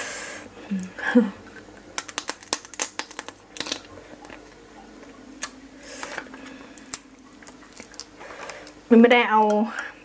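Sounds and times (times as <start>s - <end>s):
person humming: 0.6s - 1.4s.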